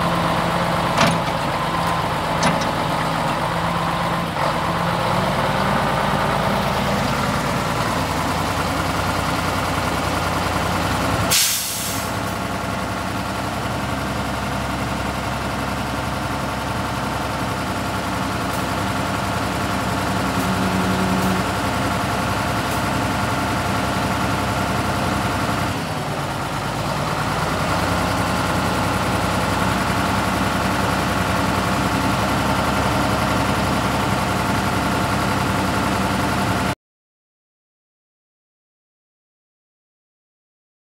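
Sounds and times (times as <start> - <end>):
diesel truck engine idling: 0.0 - 36.8
air brake hiss: 11.3 - 12.2.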